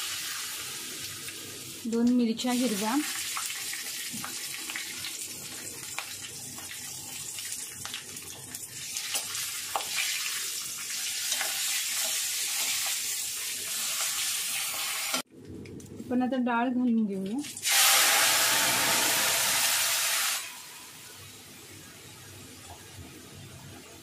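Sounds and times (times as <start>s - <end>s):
hot oil sizzling in a pan: 0.0s - 15.2s, 17.6s - 24.0s.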